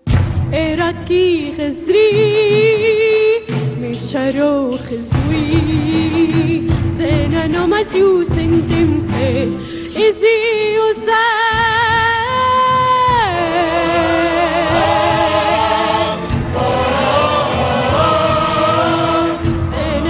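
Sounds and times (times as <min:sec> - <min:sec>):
woman singing with vibrato: 0:00.5 - 0:17.3, 0:17.9 - 0:20.0
women's choir singing: 0:13.8 - 0:20.0.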